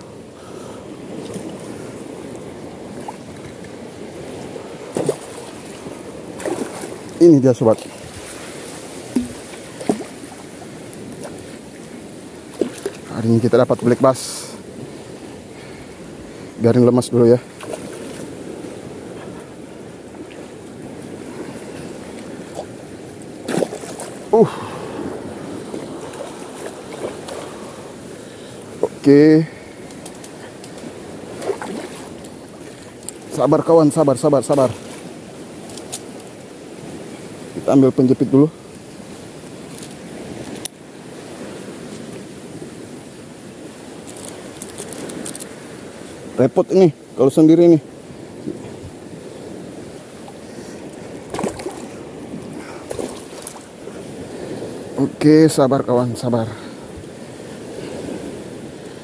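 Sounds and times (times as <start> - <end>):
wind on microphone: 0.0 - 33.4, 47.6 - 55.2
water lapping: 0.0 - 37.7, 47.5 - 55.0, 56.2 - 59.0.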